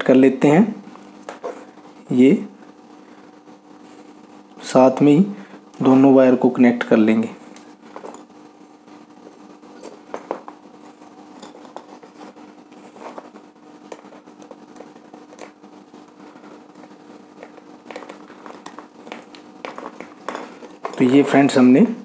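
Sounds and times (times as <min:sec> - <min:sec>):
faint wire clicks and scratches: 0:07.4 - 0:21.2.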